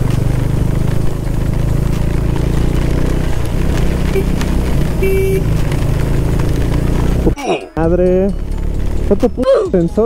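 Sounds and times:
tyre spray on wet road: 0:00.0 - 0:07.4
motorcycle engine running: 0:00.0 - 0:10.0.

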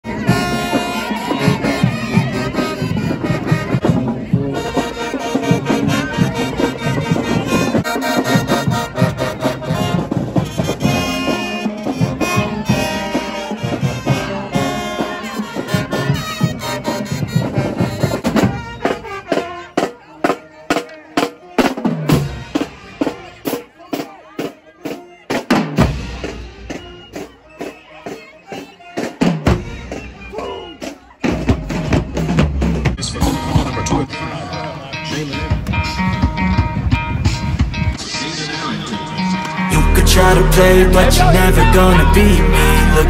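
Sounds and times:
marching band brass playing: 0:00.0 - 0:34.1, 0:35.8 - 0:43.0
snare and bass drums: 0:00.1 - 0:33.9.

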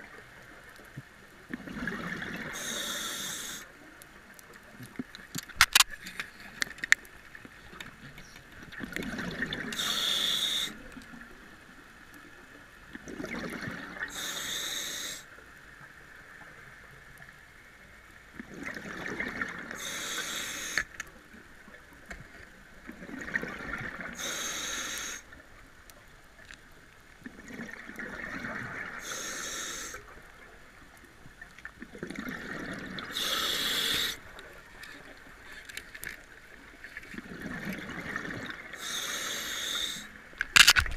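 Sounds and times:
air bubbles: 0:01.5 - 0:02.7, 0:13.0 - 0:14.3, 0:18.4 - 0:20.0, 0:22.9 - 0:24.2, 0:31.8 - 0:34.2, 0:37.1 - 0:38.9
diver breathing through regulator: 0:02.5 - 0:03.7, 0:09.7 - 0:10.8, 0:14.1 - 0:15.3, 0:19.7 - 0:20.9, 0:24.2 - 0:25.3, 0:29.0 - 0:30.0, 0:33.1 - 0:34.2, 0:38.8 - 0:40.2.

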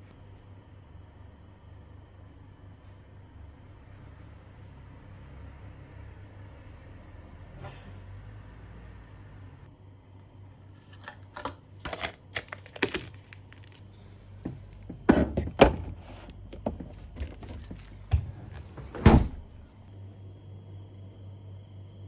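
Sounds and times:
fridge door shutting: 0:14.9 - 0:19.6.

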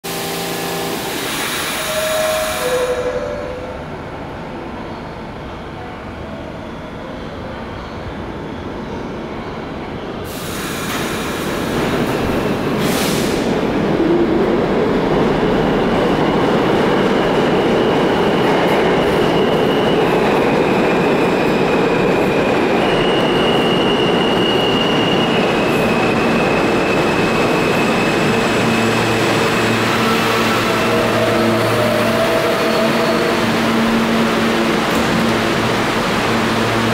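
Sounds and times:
train wheels rumbling on rail: 0:10.1 - 0:36.9.

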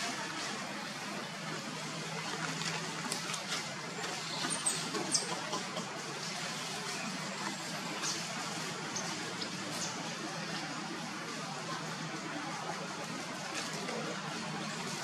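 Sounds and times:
outdoor background hiss: 0:00.0 - 0:15.0.

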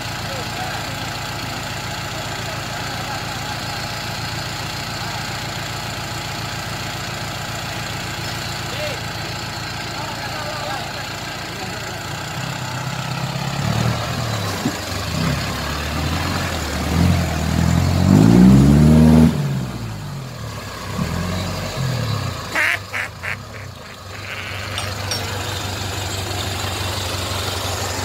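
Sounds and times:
engine revving in mud: 0:08.4 - 0:28.0.

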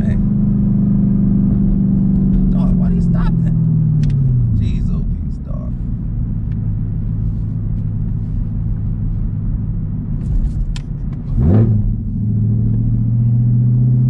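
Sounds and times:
car engine droning in cabin: 0:00.0 - 0:14.0.

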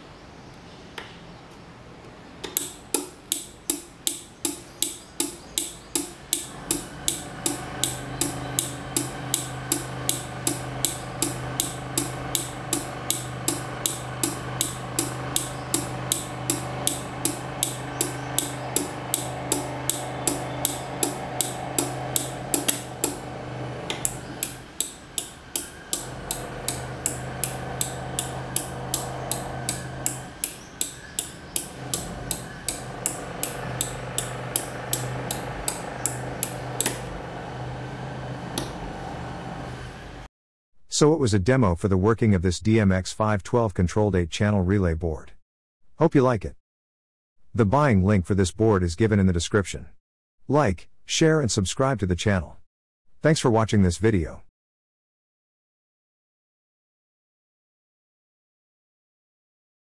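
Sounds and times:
relays clicking: 0:02.4 - 0:37.5
low hum: 0:02.6 - 0:40.3.

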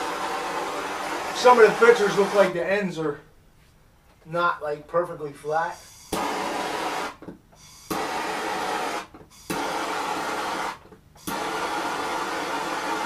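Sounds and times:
propane torch hissing: 0:00.0 - 0:02.6, 0:05.9 - 0:13.0.

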